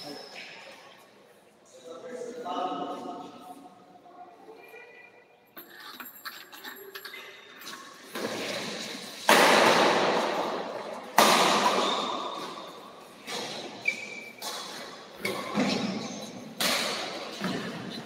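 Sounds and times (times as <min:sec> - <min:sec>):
rackets hitting shuttlecock: 0:09.2 - 0:17.8.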